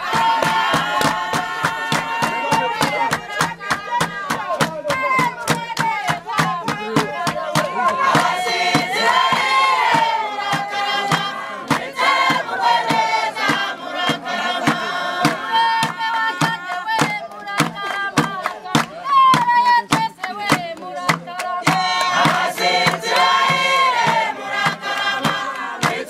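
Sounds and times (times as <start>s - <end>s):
choir singing: 0.0s - 26.0s
steady drum beat: 0.0s - 26.0s.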